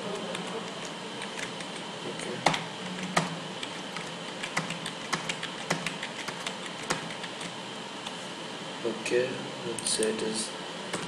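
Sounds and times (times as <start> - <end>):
computer keyboard keys clicking: 0.2 - 7.5.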